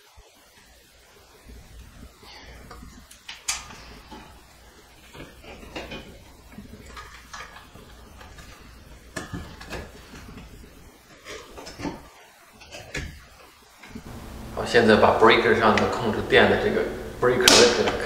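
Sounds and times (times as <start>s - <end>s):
plastic rustling: 0.6s - 14.1s.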